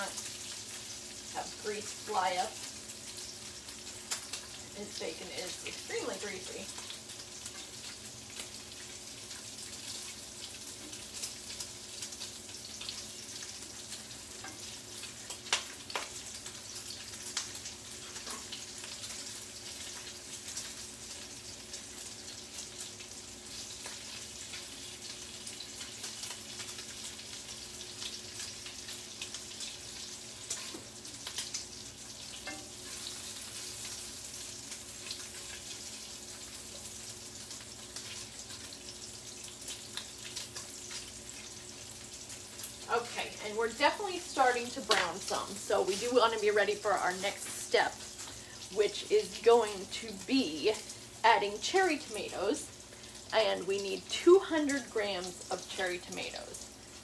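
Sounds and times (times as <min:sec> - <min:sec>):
bacon sizzling in a skillet: 0:00.0 - 0:57.0
crackles and spattering pops: 0:06.7 - 0:20.8.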